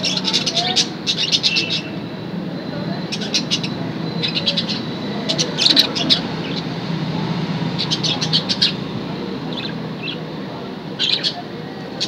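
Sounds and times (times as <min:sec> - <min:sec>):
budgerigars chirping: 0:00.0 - 0:02.1, 0:02.8 - 0:06.8, 0:07.7 - 0:10.3, 0:10.9 - 0:12.0
steady low hum: 0:00.0 - 0:12.0.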